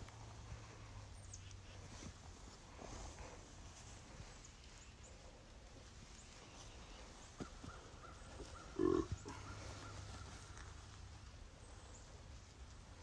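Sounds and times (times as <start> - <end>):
loud animal call: 8.4 - 10.0.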